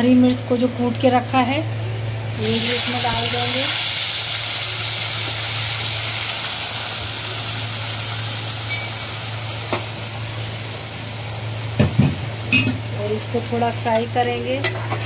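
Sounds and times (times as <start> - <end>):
paste sizzling in hot oil: 2.4 - 11.8.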